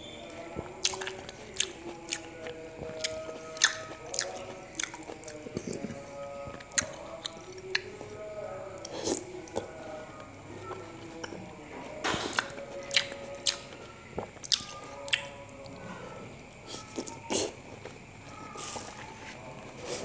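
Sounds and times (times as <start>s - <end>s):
wet squishy chewing: 0.3s - 8.2s, 8.8s - 15.8s.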